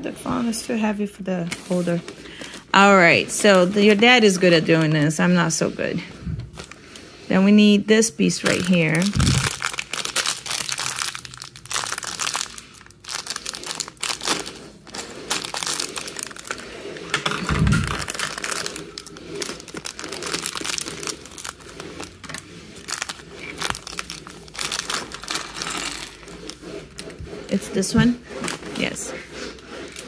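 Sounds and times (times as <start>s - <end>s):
plastic bags crinkling: 6.5s - 6.9s, 8.4s - 27.1s.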